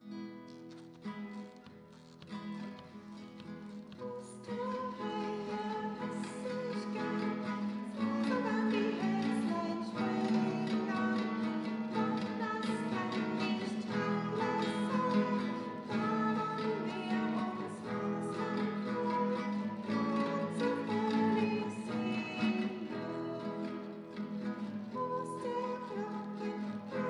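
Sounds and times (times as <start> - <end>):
classical guitar playing chords: 0.0 - 27.0.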